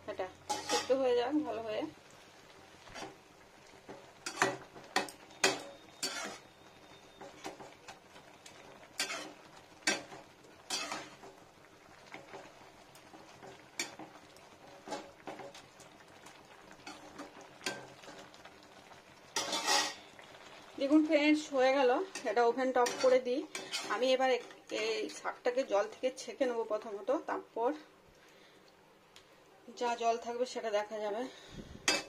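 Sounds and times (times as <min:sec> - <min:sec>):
boiling water: 0:00.0 - 0:32.0
metal spoon scraping a pan: 0:00.5 - 0:01.1, 0:02.9 - 0:03.2, 0:03.8 - 0:11.3, 0:13.4 - 0:14.2, 0:16.8 - 0:18.2, 0:19.4 - 0:20.1, 0:22.0 - 0:25.2, 0:31.8 - 0:32.0.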